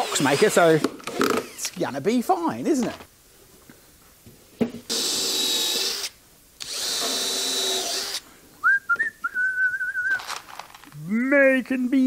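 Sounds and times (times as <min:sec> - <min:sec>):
power drill drilling into wood: 0:00.0 - 0:01.8, 0:04.9 - 0:08.2
man whistling a tune: 0:08.6 - 0:10.2.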